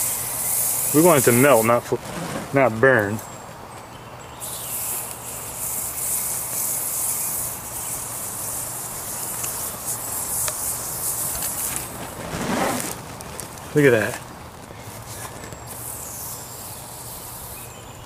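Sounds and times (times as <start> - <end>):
gel burning and sizzling: 4.4 - 12.9.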